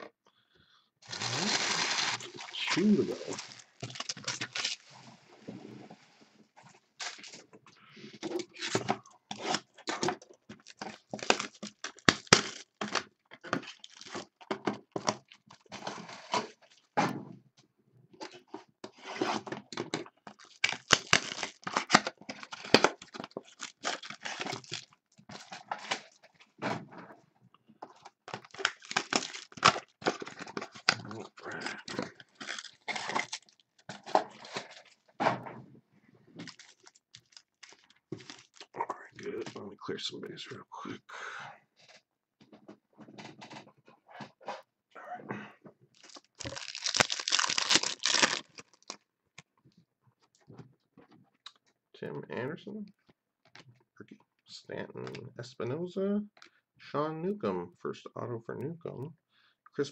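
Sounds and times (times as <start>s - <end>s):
card wrappers tearing and crinkling: 1.0s - 4.9s, 7.0s - 7.4s, 8.3s - 16.8s, 19.0s - 26.3s, 28.0s - 35.1s, 36.4s - 39.6s, 46.0s - 49.0s.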